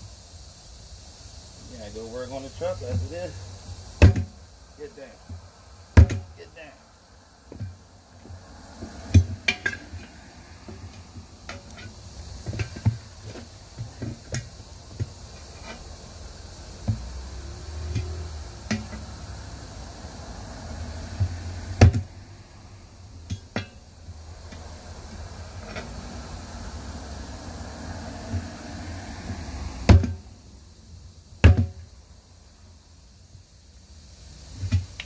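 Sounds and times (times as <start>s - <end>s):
tire irons clanking on wheel: 7.5s - 19.6s, 23.2s - 26.1s.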